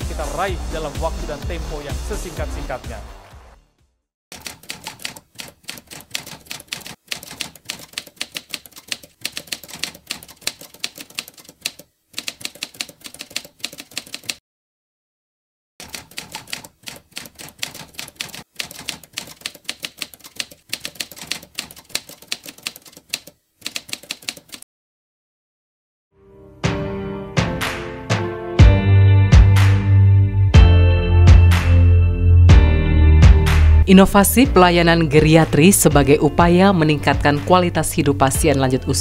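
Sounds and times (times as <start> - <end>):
typewriter key clicks: 4.4 - 14.4, 15.8 - 24.6.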